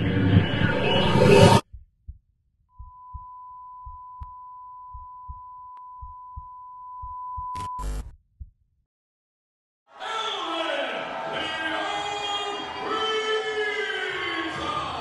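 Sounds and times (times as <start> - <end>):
soft low heartbeat thumps: 1.6 - 8.8.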